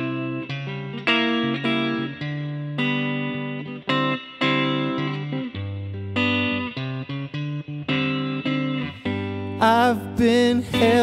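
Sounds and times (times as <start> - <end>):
guitar chords ringing: 0.0 - 11.0.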